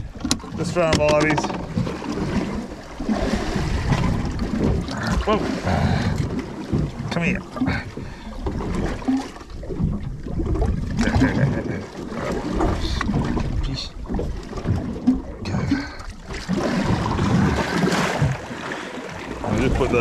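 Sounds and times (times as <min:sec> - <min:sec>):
water sloshing against boat hull: 0:00.0 - 0:20.0
wind buffeting microphone: 0:19.3 - 0:20.0.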